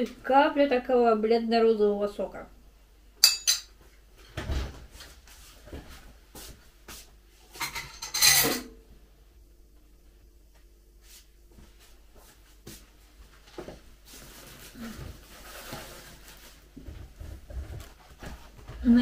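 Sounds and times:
faint steady hum: 0.0s - 19.0s
crockery clattering: 3.2s - 3.7s, 7.6s - 8.8s
dishes being handled: 3.2s - 3.8s, 7.5s - 8.8s.

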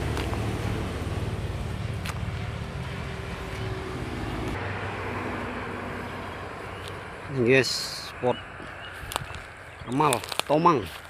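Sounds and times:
engine running at low revs: 0.0s - 7.4s.

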